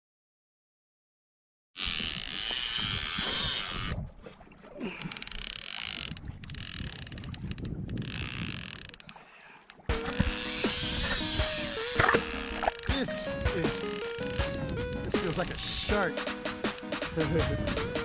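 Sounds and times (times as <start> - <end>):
fishing reel clicker ratcheting: 5.1 - 9.2, 10.0 - 16.0.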